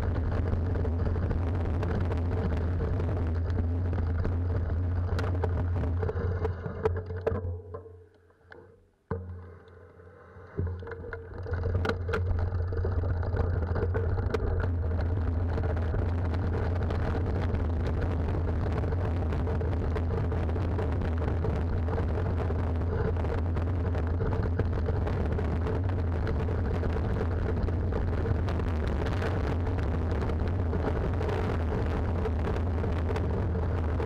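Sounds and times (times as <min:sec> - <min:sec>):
wind rumbling on microphone: 0:00.0 - 0:07.0, 0:10.6 - 0:34.0
stones under bike tyres: 0:00.0 - 0:07.5, 0:10.5 - 0:34.0
bike clicks and rattles: 0:00.1 - 0:08.0, 0:10.6 - 0:22.1.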